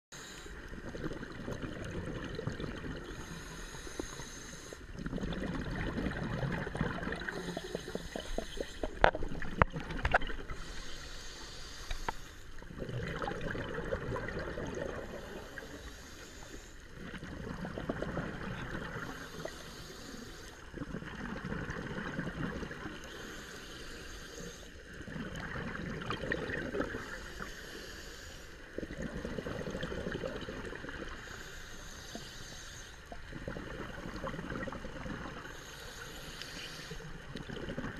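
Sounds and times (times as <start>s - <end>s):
bubbling exhaust underwater: 0.2s - 27.9s, 28.7s - 37.9s
diver inhaling through regulator: 3.0s - 5.4s, 6.1s - 9.2s, 10.2s - 13.5s, 14.3s - 17.2s, 18.4s - 20.8s, 22.9s - 24.8s, 26.4s - 37.3s.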